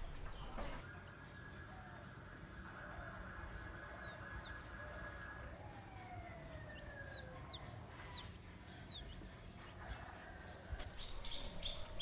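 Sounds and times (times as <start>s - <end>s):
small birds chirping: 3.0s - 5.5s, 6.5s - 12.0s.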